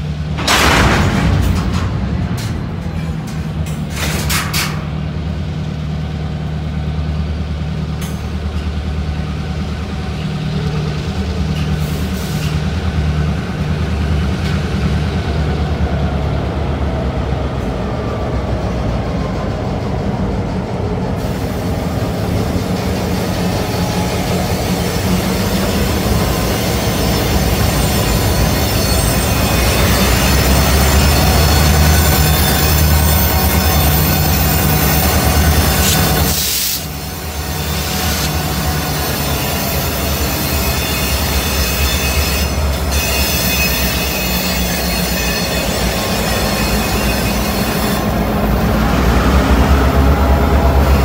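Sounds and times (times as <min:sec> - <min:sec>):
diesel locomotives droning: 0:00.0 - 0:51.0
wheels squealing on rail: 0:11.5 - 0:12.8, 0:21.2 - 0:51.0.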